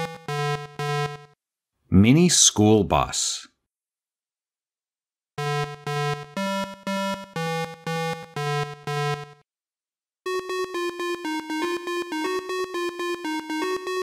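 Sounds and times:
electronic synthesizer music: 0.0 - 1.4, 5.4 - 9.4, 10.3 - 14.0.

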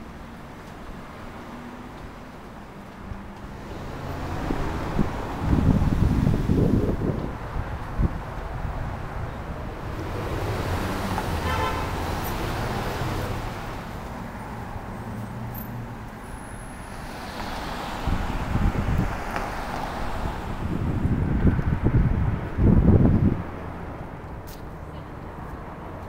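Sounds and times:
cars running past: 0.0 - 26.0
wind buffeting microphone: 3.8 - 11.1, 17.9 - 24.4
short car horn toot: 11.4 - 11.8.

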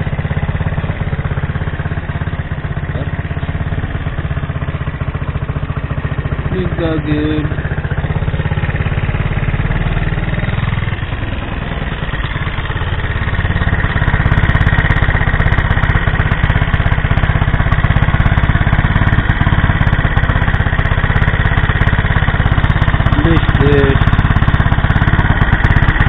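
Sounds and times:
scooter engine idling: 0.0 - 26.0.

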